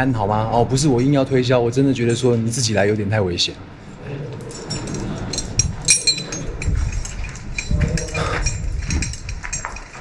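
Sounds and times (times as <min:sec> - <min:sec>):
metal climbing gear clinking: 0:04.3 - 0:10.0
dull footsteps: 0:05.9 - 0:10.0.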